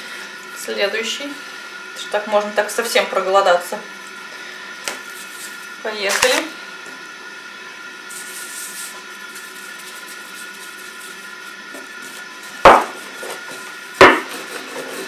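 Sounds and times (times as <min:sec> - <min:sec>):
rolling pin rolling dough: 0:08.2 - 0:15.0
knocks on table: 0:14.0 - 0:14.2.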